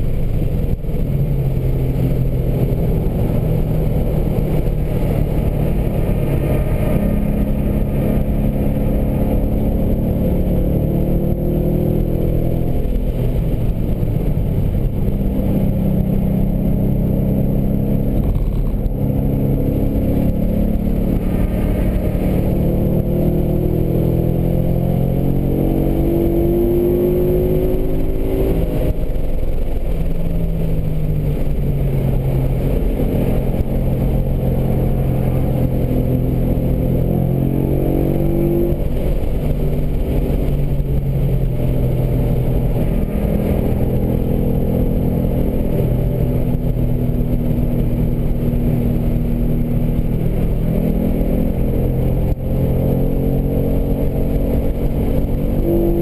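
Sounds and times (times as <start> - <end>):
car engine accelerating: 0.0 - 56.0
road noise: 0.0 - 56.0.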